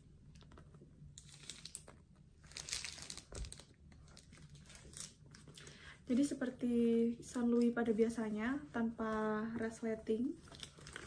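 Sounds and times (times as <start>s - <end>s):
plastic wrapping crinkling: 0.3s - 5.7s, 9.0s - 11.0s.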